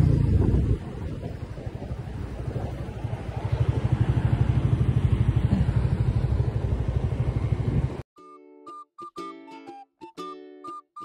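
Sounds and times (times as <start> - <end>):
motorcycle engine at low revs: 0.0 - 8.0.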